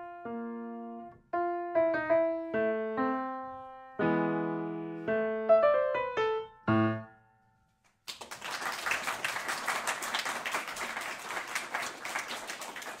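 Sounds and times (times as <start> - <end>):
piano chord: 0.0 - 7.6
people clapping: 7.9 - 13.0.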